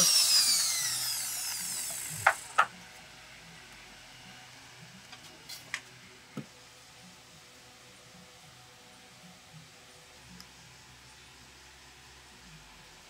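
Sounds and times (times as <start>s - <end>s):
electric drill whine spinning down: 0.0s - 2.6s.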